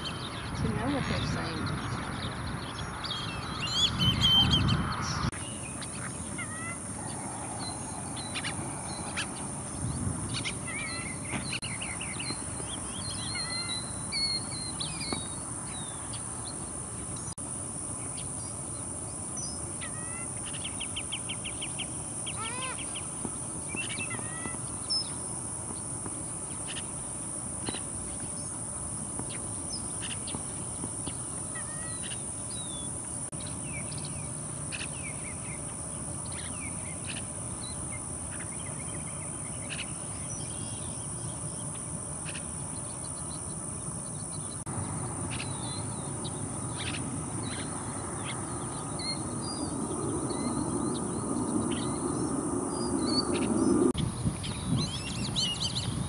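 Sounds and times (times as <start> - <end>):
bird trill: 0.0 - 16.2, 23.7 - 25.2, 45.3 - 56.0
bird chirps and whistled calls: 3.1 - 4.8, 10.3 - 15.3, 52.7 - 56.0
high-pitched insect drone: 5.3 - 16.3, 44.8 - 56.0.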